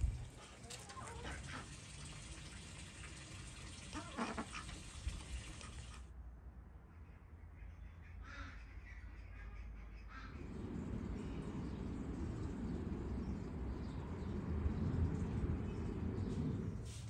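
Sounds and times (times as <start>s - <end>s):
outdoor background hiss: 10.3s - 17.0s.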